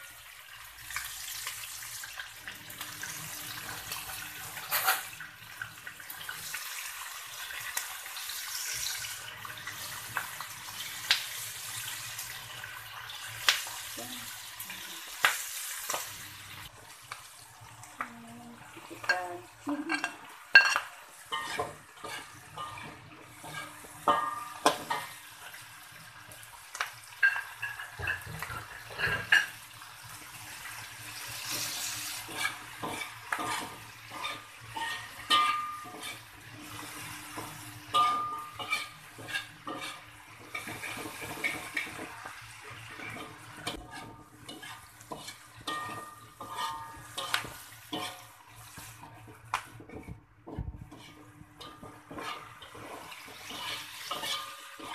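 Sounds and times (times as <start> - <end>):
food frying hiss: 0.0 - 54.9
metal spatula scraping a wok: 19.9 - 25.2, 27.2 - 29.6, 30.5 - 42.2, 42.8 - 49.3, 49.9 - 54.9.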